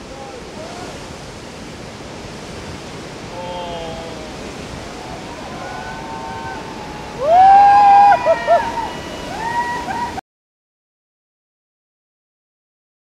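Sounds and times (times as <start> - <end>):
heavy surf breaking: 0.0 - 10.2
distant shouts: 3.4 - 10.2.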